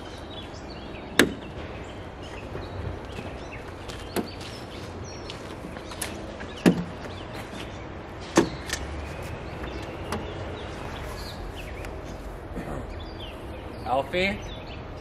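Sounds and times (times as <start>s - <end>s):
birds chirping: 0.0s - 15.0s.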